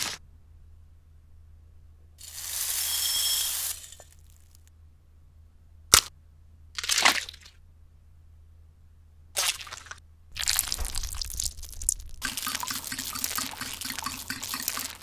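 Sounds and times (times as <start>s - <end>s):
egg shell cracking: 9.6s - 15.0s
egg spilling into bowl: 9.6s - 15.0s
flour pouring into bowl: 10.4s - 15.0s.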